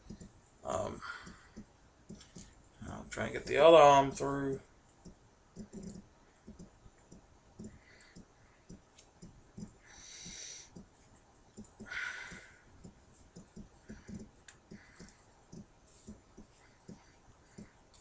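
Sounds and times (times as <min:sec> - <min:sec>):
breathy exhales: 0:11.8 - 0:12.7.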